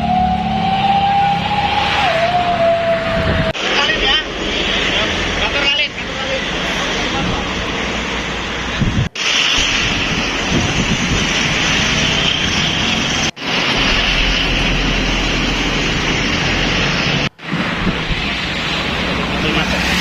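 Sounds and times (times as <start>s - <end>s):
outdoor ambience: 0.0s - 20.0s
wind on microphone: 0.1s - 3.6s, 8.6s - 20.0s.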